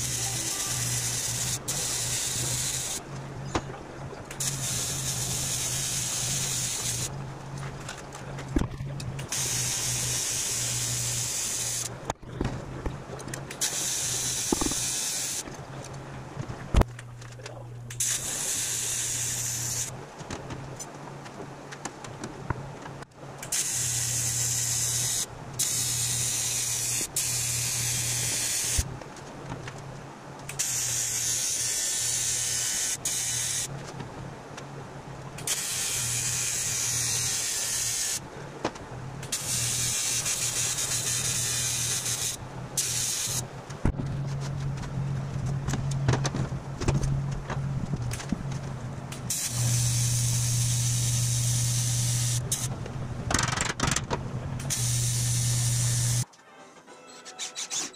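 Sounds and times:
welding arc buzzing hiss: 0.0 - 3.0, 4.3 - 7.1, 9.2 - 11.9, 13.6 - 15.5, 17.9 - 20.0, 23.4 - 28.9, 30.5 - 33.7, 35.4 - 38.2, 39.2 - 43.5, 49.2 - 52.7, 54.6 - 56.3.

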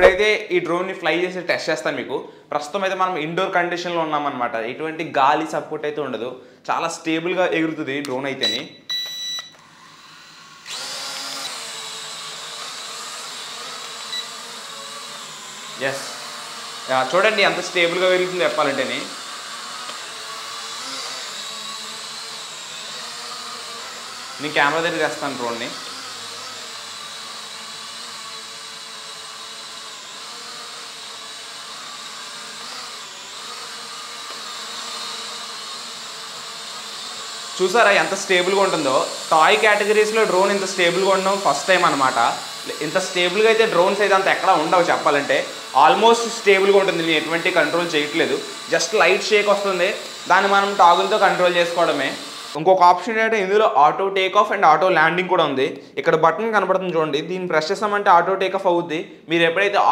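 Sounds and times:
toy quadcopter motors whining: 9.0 - 52.6.

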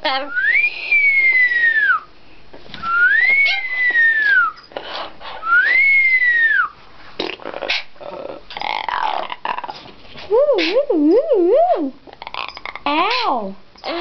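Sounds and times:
parrot whistling: 0.3 - 2.1, 2.9 - 4.6, 5.4 - 6.8.

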